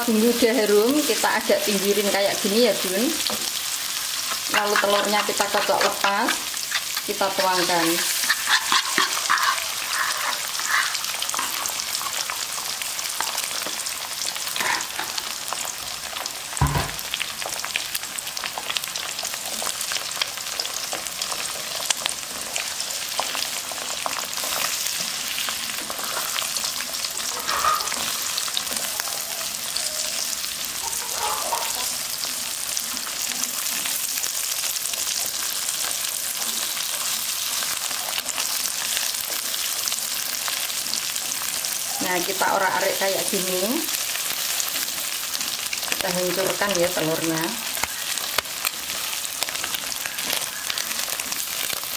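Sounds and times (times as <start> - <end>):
eggs sizzling in oil: 0.0 - 51.9
spatula scraping pan: 2.7 - 13.8, 24.4 - 28.8, 30.9 - 32.2
loud knock: 16.6 - 17.0.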